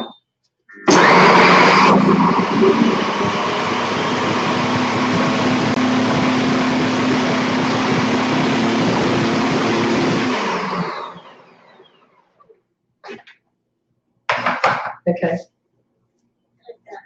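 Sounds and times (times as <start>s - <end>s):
food processor blades chopping: 0.9s - 12.2s
motor spinning down: 0.9s - 12.4s.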